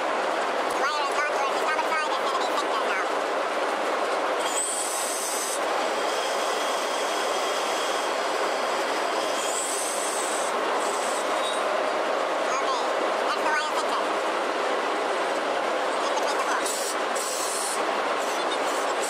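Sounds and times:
winch metallic grinding rumble: 4.0s - 19.0s
high metallic squeal: 4.4s - 11.7s.

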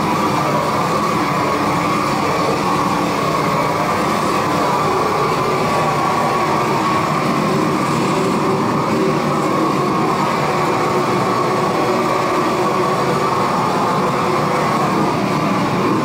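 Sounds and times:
loud machine drone: 0.0s - 16.0s.

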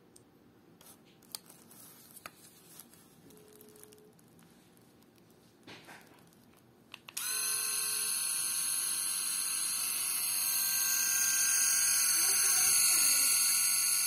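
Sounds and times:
electric shaver motor buzzing: 7.2s - 14.0s.

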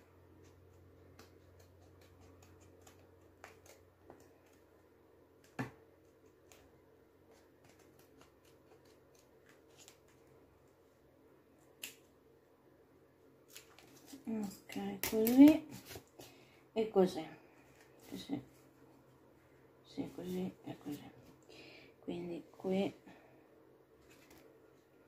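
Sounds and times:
low room hum: 0.0s - 25.0s
scissors snipping paper: 0.4s - 4.7s, 7.3s - 10.2s
paper rustling: 7.3s - 10.3s, 13.4s - 14.6s, 24.0s - 24.6s.

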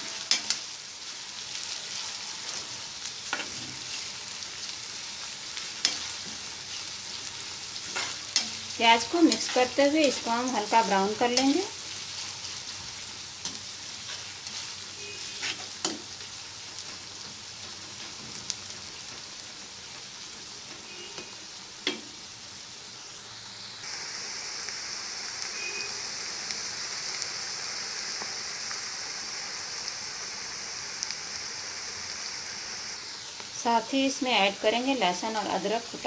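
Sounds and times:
onions sizzling in hot oil: 0.0s - 36.0s.

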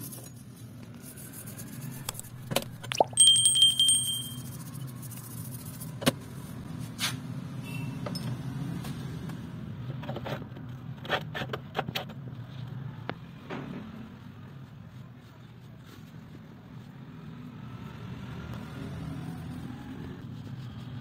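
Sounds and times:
metal clinks on workbench: 3.1s - 4.5s.

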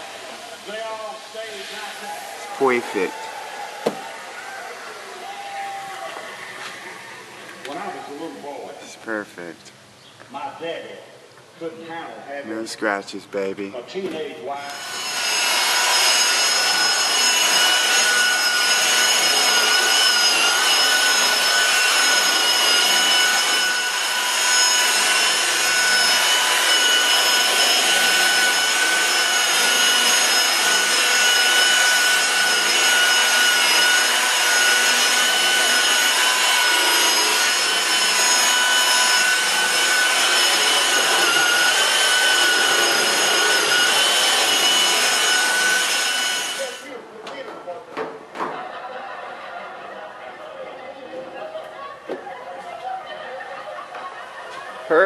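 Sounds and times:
rotary polisher motor whine: 5.9s - 8.2s, 14.7s - 46.9s.

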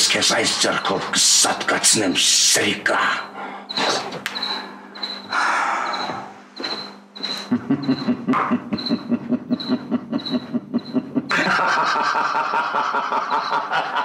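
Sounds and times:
man laughing: 7.5s - 14.0s.

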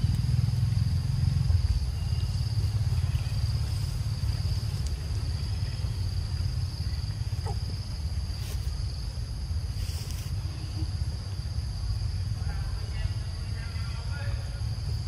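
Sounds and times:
faint ticks: 4.6s - 5.1s.

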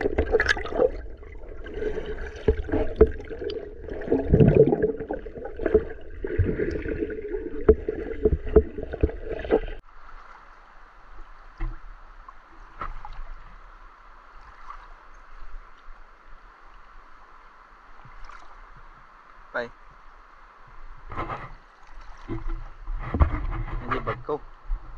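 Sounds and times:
muffled underwater water rumble: 0.0s - 14.4s
shallow river flowing: 0.0s - 23.8s.

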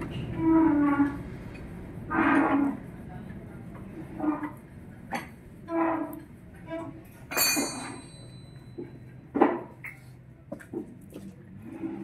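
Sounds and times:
metal tool clinking on metal: 7.3s - 8.8s.

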